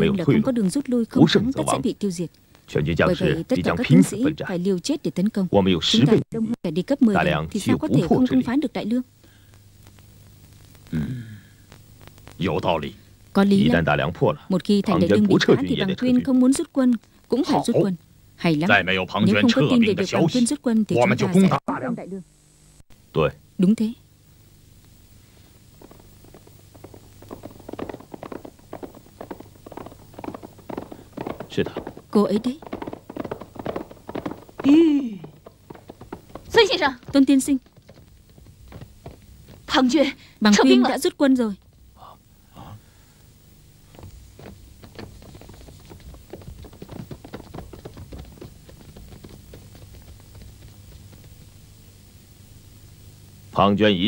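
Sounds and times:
faint steady hum: 0.0s - 54.0s
quick footsteps approaching: 25.3s - 41.9s, 43.8s - 51.8s.

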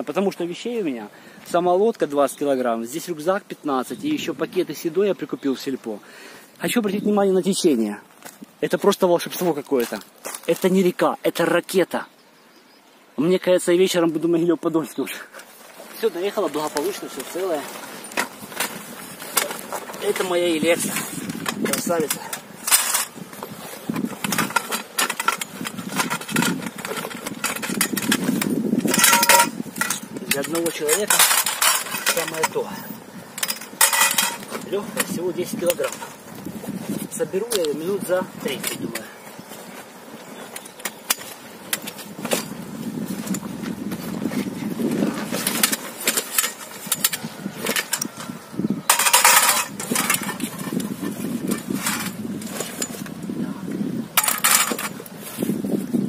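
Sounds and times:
fabric and nylon bag rustling: 15.4s - 33.3s, 34.0s - 48.5s
aluminium tubes clinking: 15.7s - 39.6s, 40.4s - 43.6s, 44.9s - 53.2s, 54.2s - 55.1s.

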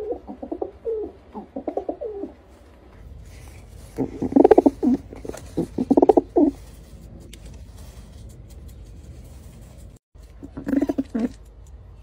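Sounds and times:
pigeon cooing: 0.0s - 2.5s, 3.9s - 6.6s, 10.4s - 11.4s.

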